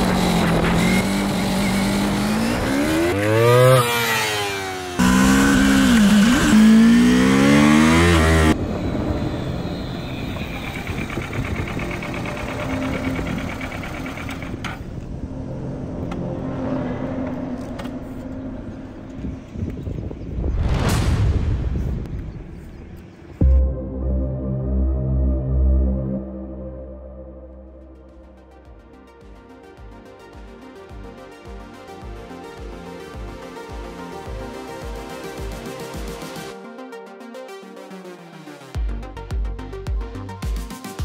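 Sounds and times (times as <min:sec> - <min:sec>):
motorcycle engine revving: 0:00.0 - 0:14.9.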